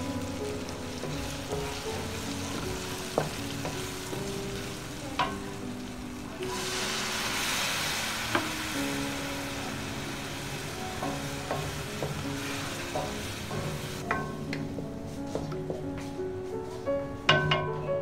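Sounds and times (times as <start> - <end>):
food sizzling in oil: 0.0 - 17.4
wooden spoon scraping a pan: 1.0 - 5.4
spoon knocking against pan: 2.5 - 3.9, 5.2 - 5.5, 11.0 - 12.3, 12.9 - 13.2, 14.0 - 15.9, 17.3 - 17.8.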